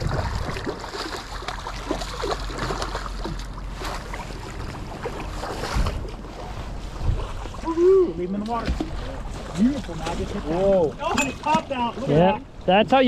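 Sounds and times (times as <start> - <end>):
wind on microphone: 0.0 - 0.9, 4.6 - 7.8
fish splashing in water: 0.0 - 6.5.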